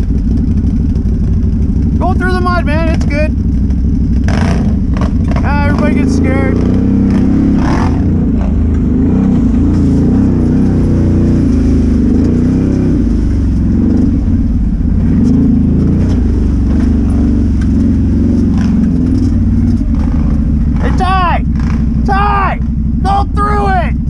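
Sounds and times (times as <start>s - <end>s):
atv engine revving under load: 0.0s - 24.0s.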